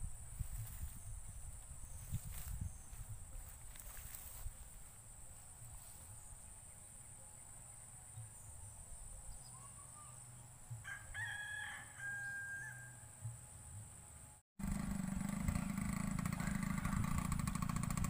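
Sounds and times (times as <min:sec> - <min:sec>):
rooster crowing: 0:10.8 - 0:13.3, 0:16.3 - 0:17.3.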